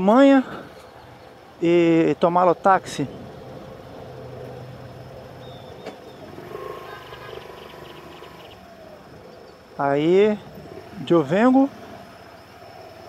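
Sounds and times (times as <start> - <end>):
faint high whine: 0.0 - 13.0
motorcycle engine at low revs: 3.0 - 13.0.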